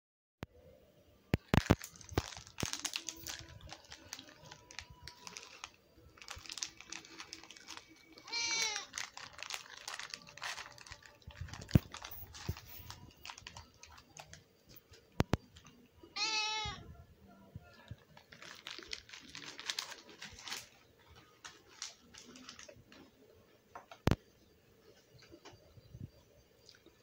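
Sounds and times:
cat meowing: 8.2s - 8.9s, 16.1s - 16.9s
small clicks and rustles: 17.8s - 23.1s.

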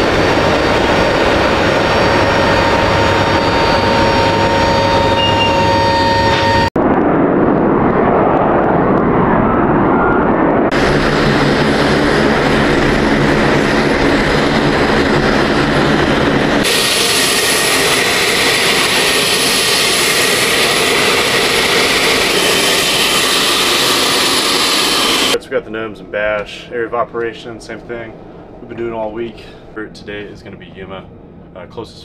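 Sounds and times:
turboprop engines droning: 0.0s - 32.0s.

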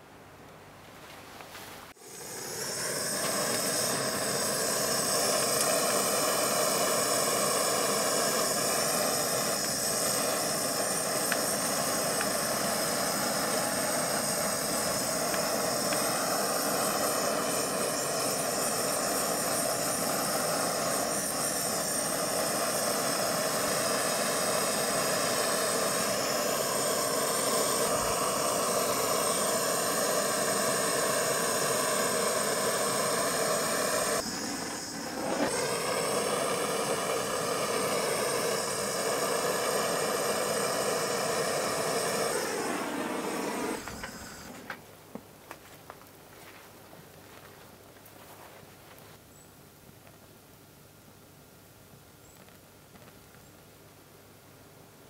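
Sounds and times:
blowtorch flame hissing: 1.9s - 44.8s.

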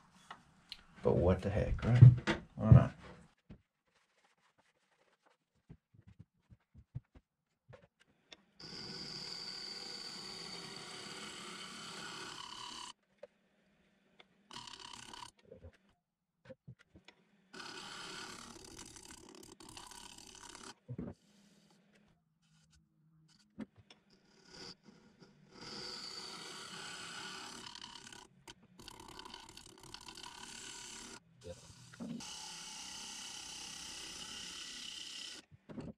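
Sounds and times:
lathe tool cutting wood bowl: 8.6s - 12.9s, 25.6s - 28.2s, 32.2s - 35.4s.

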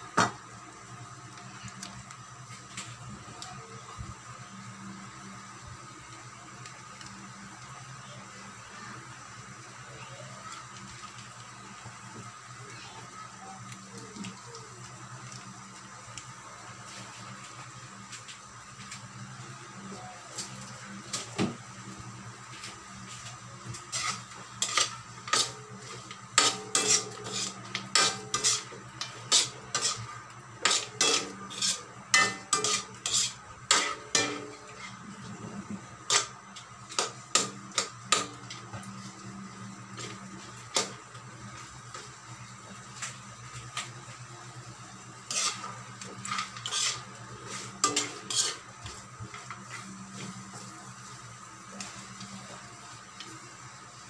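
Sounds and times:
metal spoon scraping a wok: 23.9s - 35.1s, 36.0s - 38.3s, 45.2s - 49.9s.

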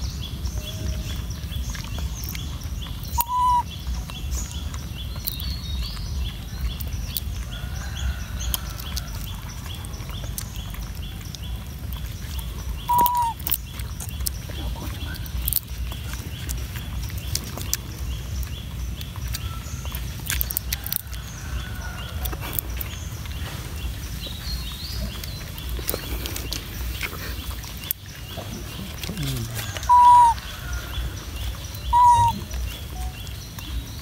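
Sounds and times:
steady low rumble: 0.0s - 34.0s
puppy lapping milk: 0.8s - 34.0s
fast even chirping: 3.0s - 3.8s, 12.4s - 14.2s, 29.8s - 30.4s, 31.8s - 33.2s.

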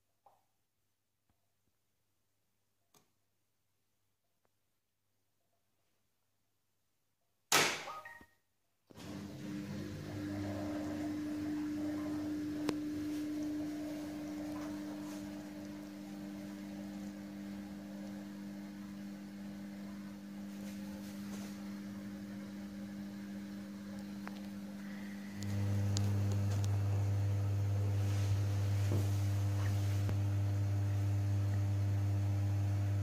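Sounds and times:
washing machine drum humming: 8.9s - 33.0s.

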